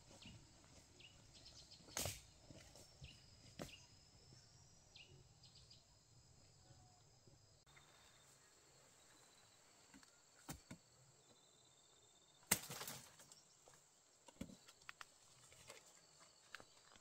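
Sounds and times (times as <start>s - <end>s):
faint high insect drone: 0.1s - 17.0s.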